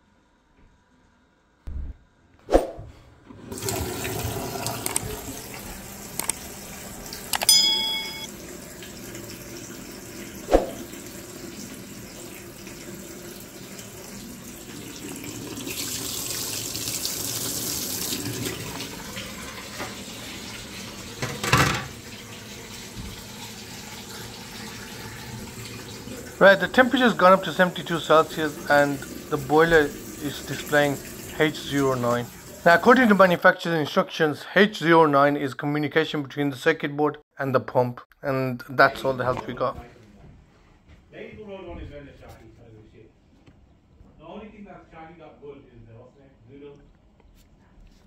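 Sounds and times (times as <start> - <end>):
ringing clink: 7.4 - 8.3
tap running into sink: 21.1 - 26.3.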